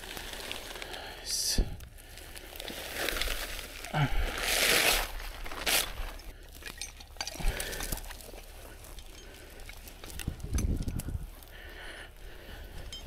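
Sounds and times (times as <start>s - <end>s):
dry brush rustling: 2.2s - 6.3s
metal shackles clinking: 5.4s - 11.2s, 12.6s - 13.0s.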